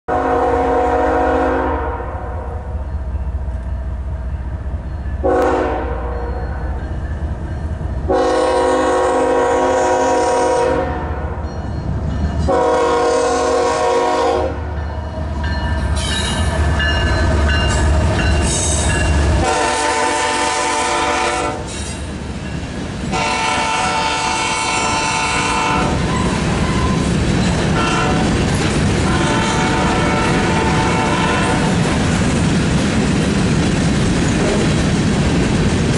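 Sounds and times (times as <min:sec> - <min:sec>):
locomotive air horn blasts: 0:00.1 - 0:02.6, 0:05.2 - 0:06.3, 0:08.1 - 0:11.3, 0:12.5 - 0:14.7, 0:19.4 - 0:21.7, 0:23.1 - 0:26.8, 0:27.8 - 0:28.3, 0:29.0 - 0:31.8
locomotives rumbling past: 0:00.2 - 0:35.9
train wheels on rails: 0:02.5 - 0:35.9.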